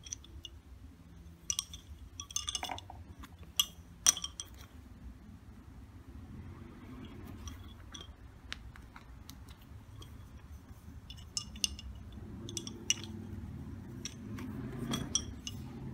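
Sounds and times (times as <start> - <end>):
wooden bobbins clicking: 1.4 - 4.8, 7.1 - 15.9.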